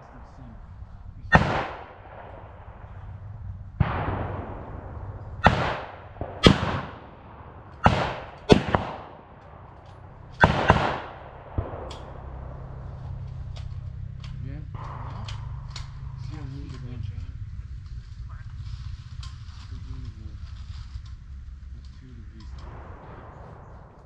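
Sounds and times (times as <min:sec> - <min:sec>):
gunshots with echo: 0:00.0 - 0:13.4, 0:14.7 - 0:17.2, 0:22.6 - 0:24.0.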